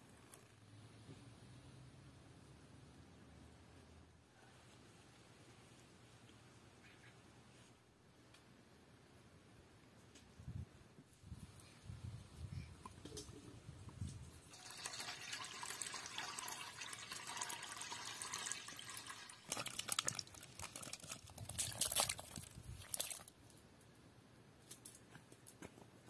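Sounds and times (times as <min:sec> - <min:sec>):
water sloshing in a steel bowl: 0:14.5 - 0:23.3
figs splashing into water: 0:19.1 - 0:23.3.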